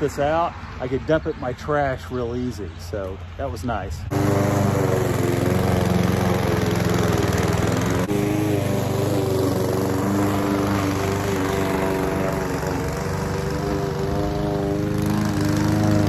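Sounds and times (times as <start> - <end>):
lawn mower engine running: 4.0 - 16.0.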